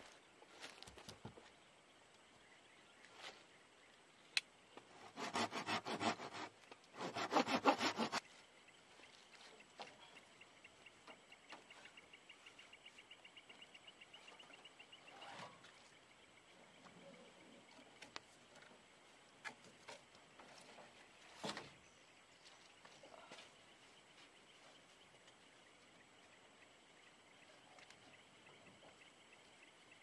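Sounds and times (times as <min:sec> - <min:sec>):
hand saw cutting wood: 0:04.9 - 0:08.2.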